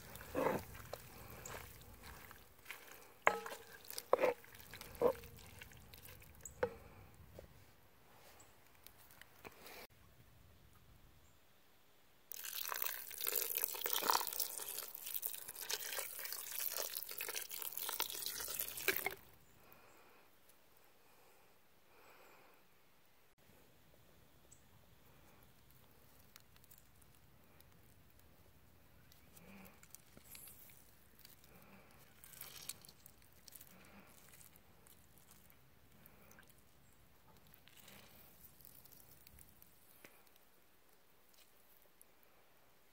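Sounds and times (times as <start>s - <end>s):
water poured into sauce: 12.3s - 19.2s.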